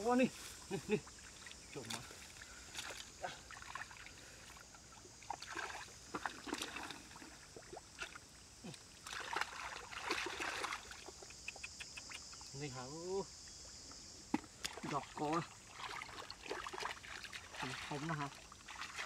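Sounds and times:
hands splashing in muddy water: 0:05.2 - 0:11.2, 0:14.3 - 0:19.0.

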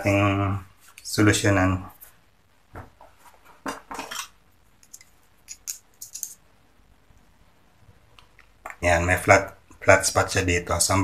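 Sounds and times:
small metal parts clinking: 0:04.1 - 0:06.4.

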